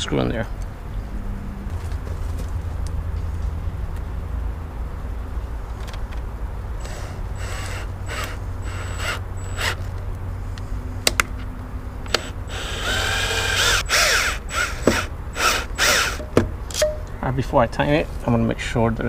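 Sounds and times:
cordless drill driving a screw: 6.8 - 9.9, 12.1 - 16.2
drill clutch clicks: 12.0 - 16.9.

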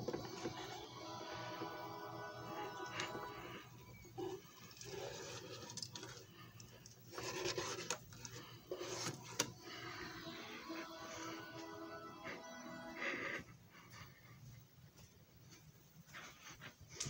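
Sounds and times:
disc scraping and rubbing: 7.1 - 10.5.

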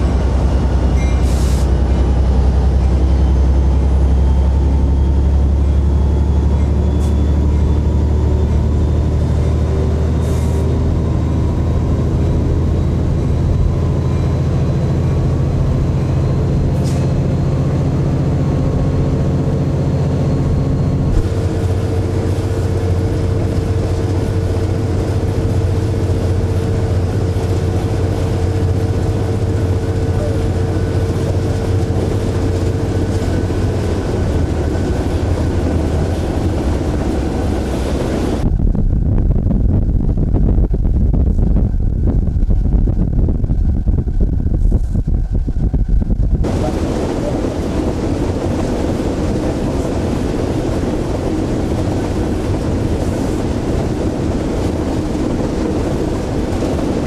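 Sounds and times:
train rolling on rails: 0.0 - 39.0, 39.7 - 57.0
diesel locomotive engine drone: 0.0 - 57.0
steady hum: 17.3 - 57.0.

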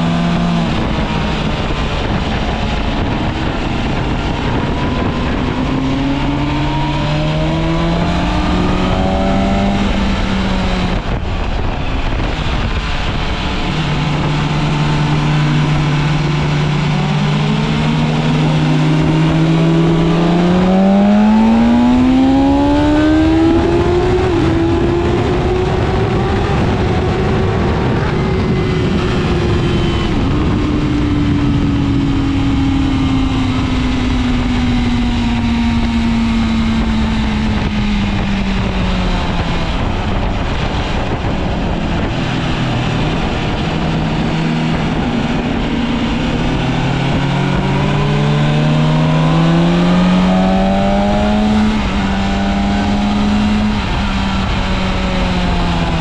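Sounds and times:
heavy wind rush: 0.0 - 56.0
motorcycle engine running hard: 0.0 - 56.0.

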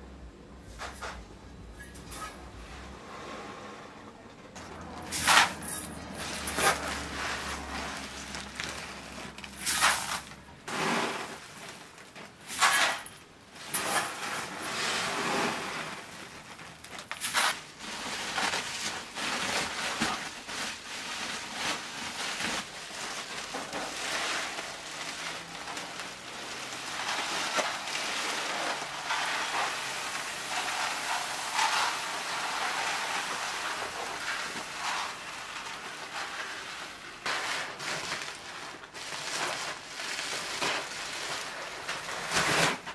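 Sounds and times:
rice rustling in plastic bin: 4.6 - 42.9
grain pouring hiss: 5.1 - 42.6.

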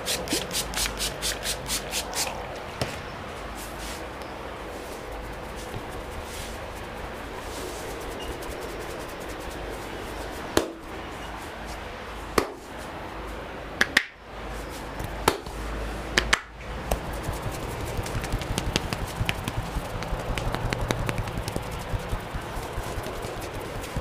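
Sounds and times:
light taps on head: 16.2 - 24.0
hair cracking: 16.9 - 24.0.

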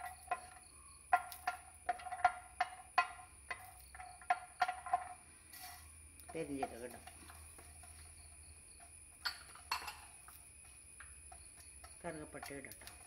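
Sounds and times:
spatula knocking frying pan: 0.0 - 5.0.

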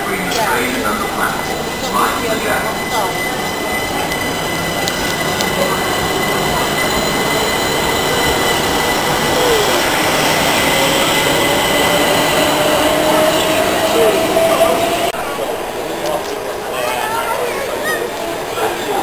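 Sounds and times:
train wheels rumbling on rail: 0.0 - 19.0
rising whine: 3.0 - 15.4.

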